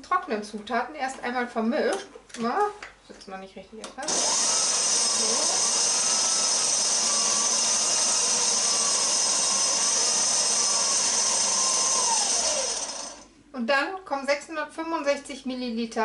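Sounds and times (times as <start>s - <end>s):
stand mixer motor whining: 4.0s - 13.3s.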